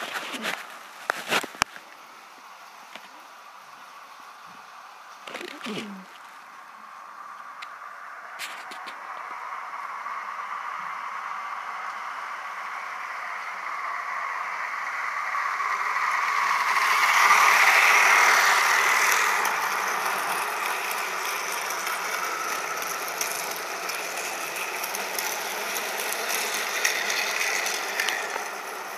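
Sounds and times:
toy train motor whirring: 7.7 - 28.9.

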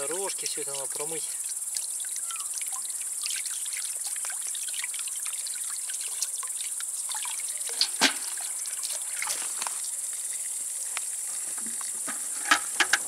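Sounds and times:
insects chirring: 0.0 - 13.0
water splashing in tub: 1.0 - 9.9.

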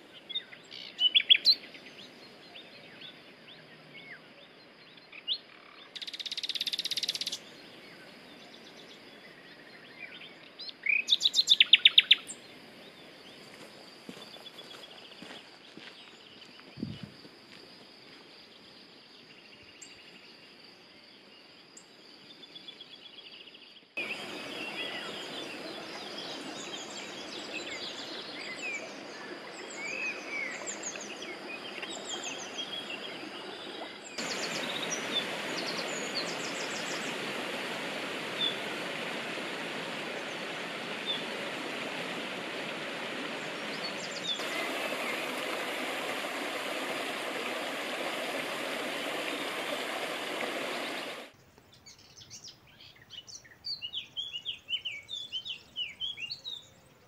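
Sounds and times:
birds singing: 0.0 - 17.1, 21.7 - 57.0
stream rushing: 24.0 - 51.4.

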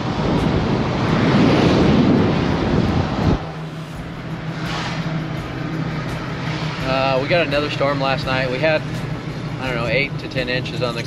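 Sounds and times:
wind buffeting microphone: 0.0 - 7.1
truck engine humming: 0.0 - 11.0.

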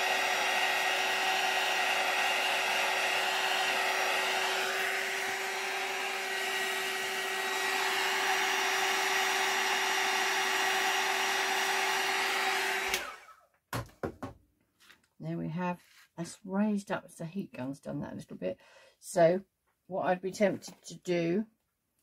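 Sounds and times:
heat gun blowing: 0.0 - 13.4.

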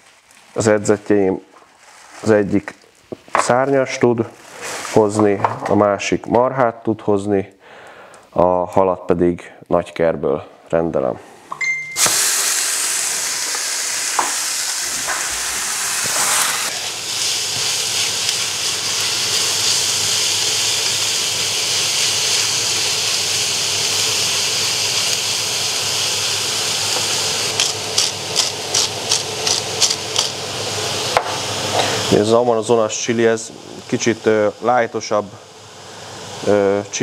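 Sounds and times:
meat sizzling in a frying pan: 12.0 - 37.0.

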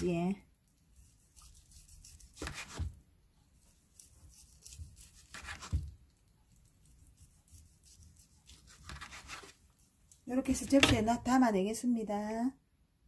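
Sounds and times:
knife slicing meat: 0.7 - 11.0.

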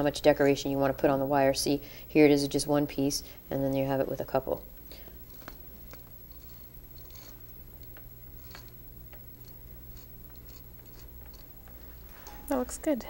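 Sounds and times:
steady low hum: 0.0 - 13.0
metal wire ticking and rustling: 4.8 - 12.6.

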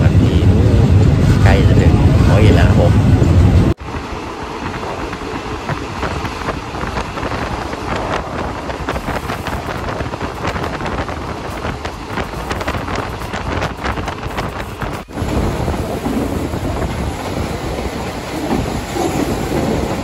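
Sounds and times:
train rushing rumble: 0.0 - 20.0
wind buffeting microphone: 0.0 - 20.0.

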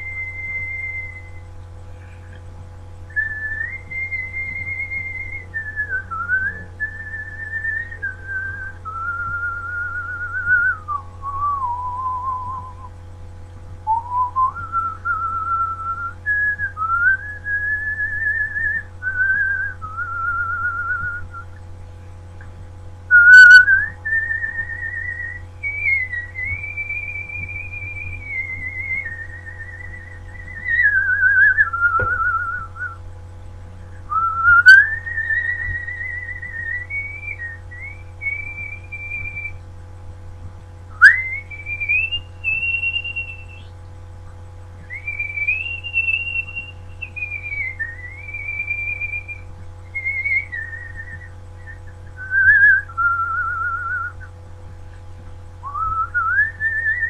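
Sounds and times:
person whistling a melody: 0.0 - 1.4, 3.1 - 12.9, 13.9 - 21.6, 23.1 - 33.0, 34.1 - 39.6, 40.9 - 43.7, 44.8 - 54.3, 55.6 - 57.0
low electrical hum: 0.0 - 57.0.

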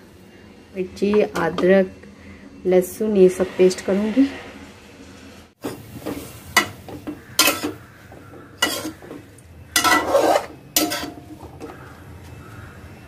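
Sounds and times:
metal ladle scraping a pan: 5.6 - 11.7
greens sizzling: 5.6 - 12.6.

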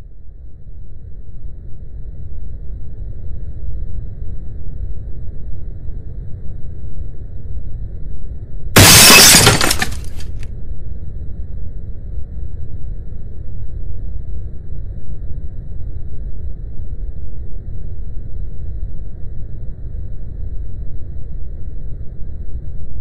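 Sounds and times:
shards clattering: 8.8 - 10.4
vase shattering on concrete: 8.8 - 10.4.

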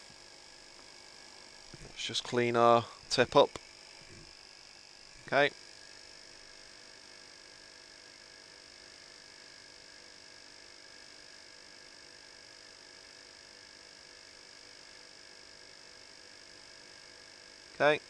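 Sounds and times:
faint electrical hum: 0.0 - 18.0.

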